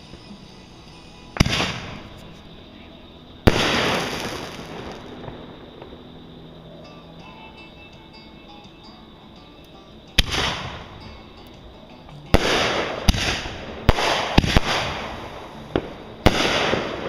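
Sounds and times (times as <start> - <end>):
fireworks bangs: 0.0 - 6.4, 10.2 - 11.1, 12.2 - 17.0.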